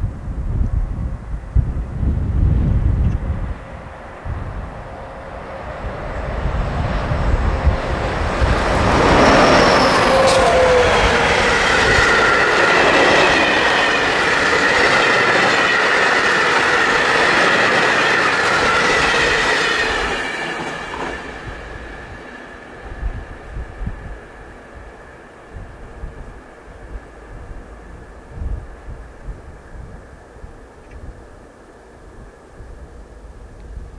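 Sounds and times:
train wheels rumbling: 1.4s - 29.1s
falling tone from locomotives: 3.1s - 28.1s
high-pitched wheel squeal: 7.2s - 20.7s.

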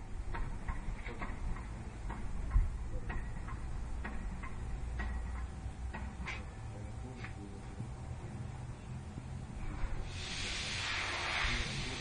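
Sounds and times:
steady low rumble: 0.0s - 12.0s
light irregular taps: 0.3s - 6.5s.

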